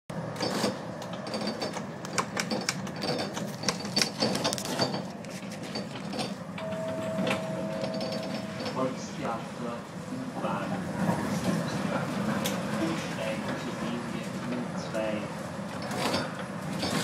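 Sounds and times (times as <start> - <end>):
tram running rumble: 0.1 - 17.0
clicking and rattling in tram cab: 0.3 - 9.1, 11.0 - 14.7, 15.7 - 17.0
steady tone: 6.6 - 9.1.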